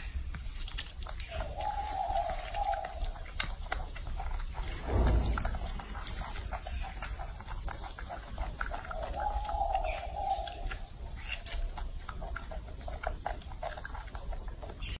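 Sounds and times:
monkey chewing wet clicks: 0.0 - 15.0
long drawn-out sound: 4.7 - 6.5.

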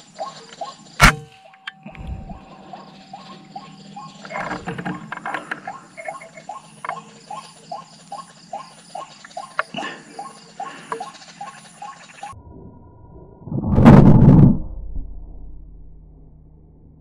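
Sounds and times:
waterhen calling: 2.1 - 12.4.

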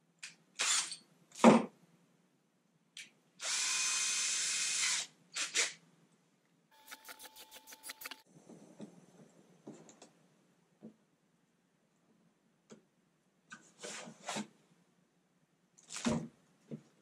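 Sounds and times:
cordless drill running: 3.4 - 5.1.

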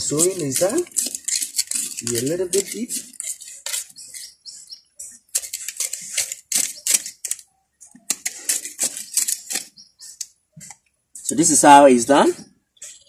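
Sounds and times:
knife scraping into soil: 0.0 - 10.3.

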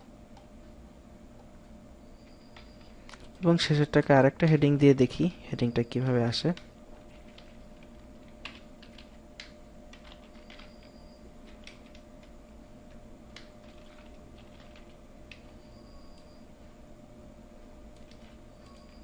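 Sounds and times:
steady low hum: 0.0 - 19.0
computer keyboard keystrokes clicking: 6.5 - 12.4, 13.3 - 16.3, 18.0 - 19.0.

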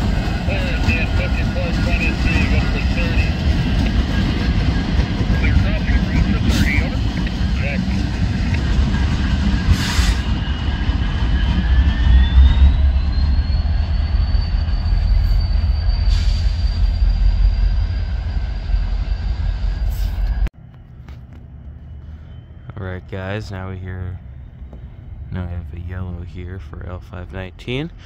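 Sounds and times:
high wheel squeal: 0.0 - 20.4
train rumbling past: 0.0 - 28.0.

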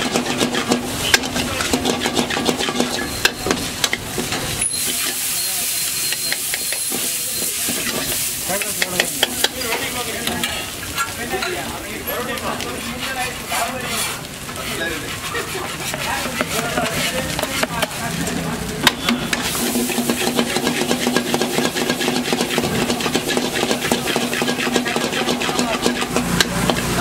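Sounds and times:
stirring clicks: 0.0 - 4.6, 12.3 - 27.0
metal ladle scraping iron pan: 0.0 - 11.6, 12.7 - 27.0
food sizzling: 0.0 - 27.0.

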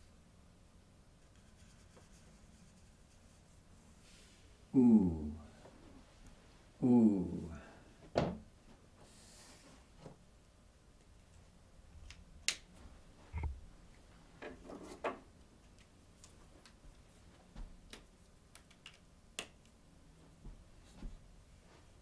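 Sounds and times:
marker pens clicking and tapping: 17.9 - 19.8.

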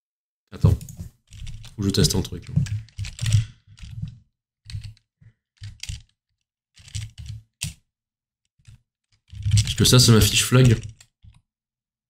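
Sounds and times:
computer keyboard typing: 0.8 - 6.2, 6.8 - 7.8, 8.6 - 11.4.

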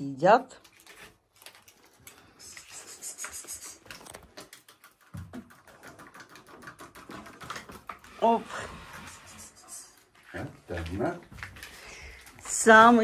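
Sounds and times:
cat food bowls clicking and scraping: 3.7 - 9.3.

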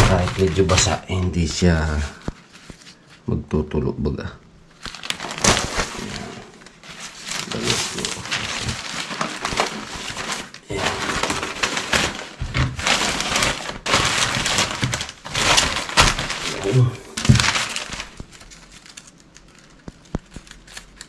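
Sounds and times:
plastic bags rustling and crinkling: 0.0 - 3.2, 4.7 - 20.7
sharp cracks and snaps: 17.2 - 21.0.

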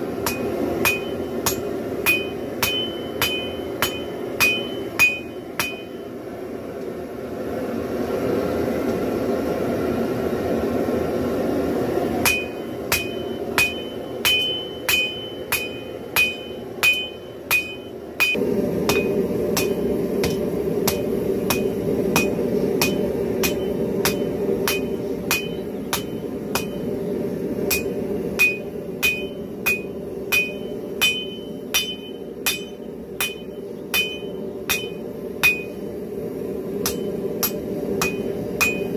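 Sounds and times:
steady rushing noise: 0.0 - 38.9
hammer striking steel on anvil: 0.2 - 6.1, 12.2 - 26.9, 27.7 - 35.8, 36.8 - 38.9.

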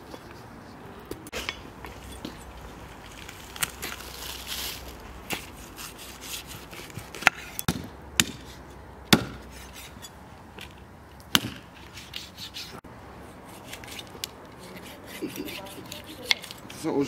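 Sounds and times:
knife cutting meat: 14.6 - 16.6.

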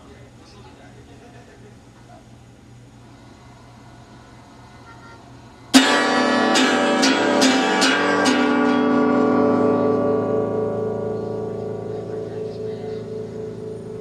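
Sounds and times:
guitar strumming chords: 5.7 - 14.0.

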